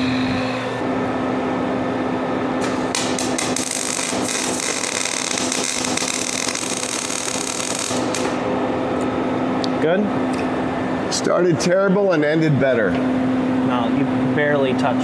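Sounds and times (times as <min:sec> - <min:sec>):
welding arc crackling: 0:02.6 - 0:08.4.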